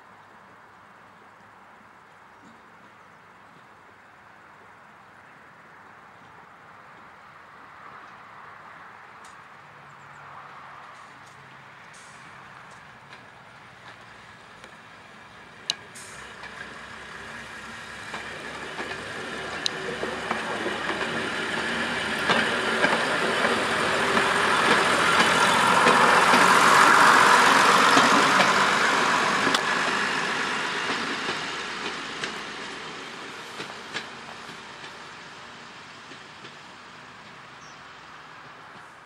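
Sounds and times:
diesel train passing: 8.0s - 39.0s
sharp clicks of wheels on rails: 15.5s - 35.1s.

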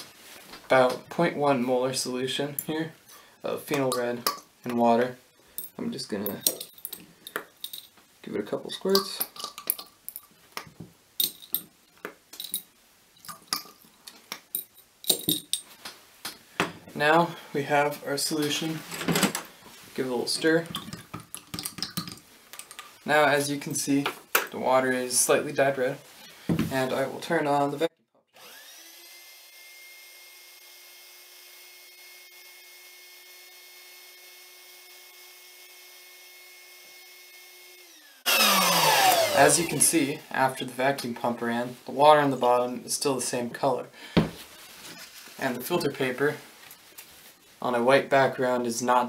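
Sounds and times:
electric pump running: 28.4s - 39.8s.

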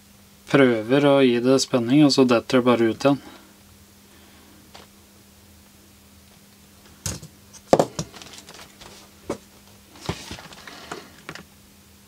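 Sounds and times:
knocks and rustles of handling: 6.9s - 11.5s.

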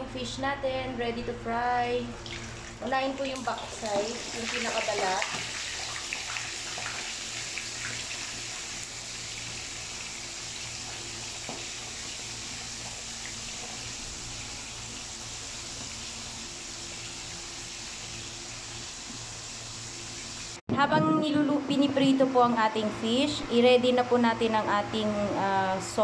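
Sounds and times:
oil sizzling in a pan: 2.4s - 20.6s.

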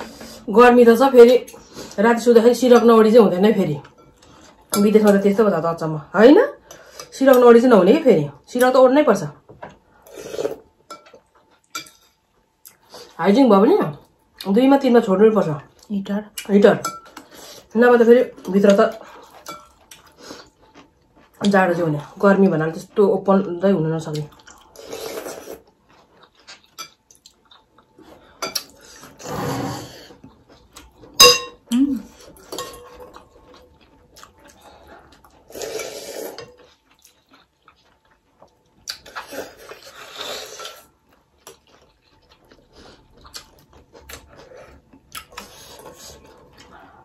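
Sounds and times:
slurping noodles: 29.0s - 30.2s, 35.4s - 36.4s
cutlery scraping glass bowls: 31.2s - 31.6s, 32.5s - 33.0s
sharp ringing clink: 31.2s - 31.6s.

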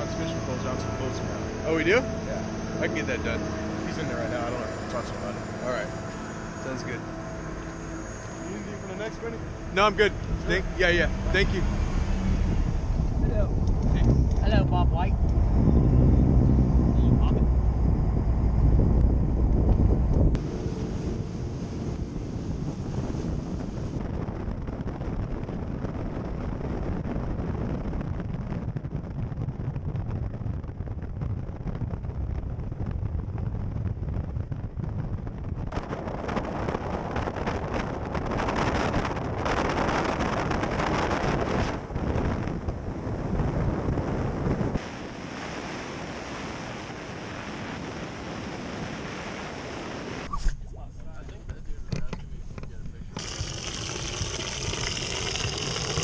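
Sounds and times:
boat rushing across water: 0.0s - 17.6s, 20.2s - 24.8s, 35.7s - 50.3s, 53.1s - 56.0s
wind buffeting microphone: 0.0s - 56.0s.

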